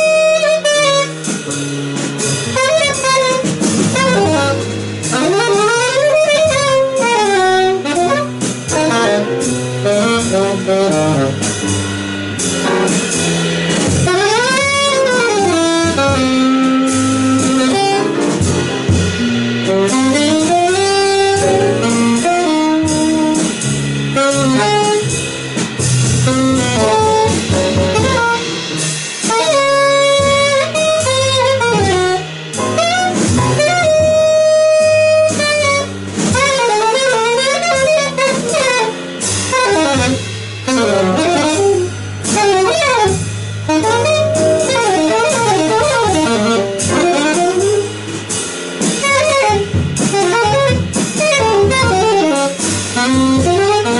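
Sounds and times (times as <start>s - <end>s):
alto saxophone solo: 0.0s - 53.9s
drums: 0.0s - 53.9s
piano: 0.0s - 53.9s
upright bass: 0.0s - 53.9s.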